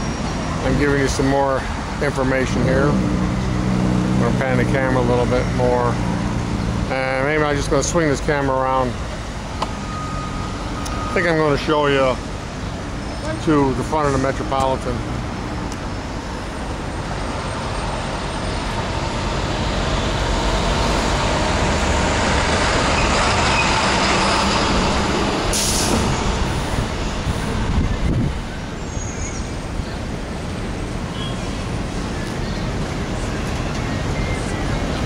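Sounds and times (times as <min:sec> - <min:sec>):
city street traffic: 0:00.0 - 0:35.0
heavy vehicle passing: 0:00.0 - 0:35.0
short sharp hiss: 0:25.5 - 0:26.2.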